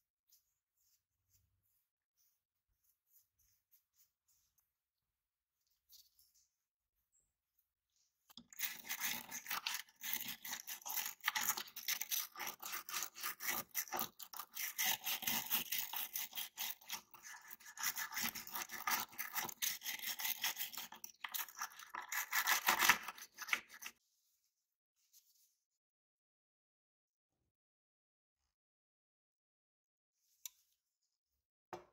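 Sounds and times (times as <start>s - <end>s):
stiff brush scrubbing metal: 8.4s - 23.9s.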